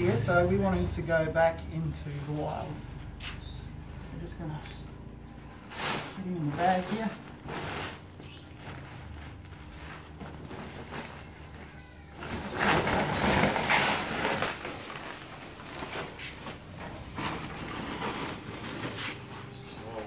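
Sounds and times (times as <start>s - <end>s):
plastic sack rustling and crinkling: 5.4s - 20.0s.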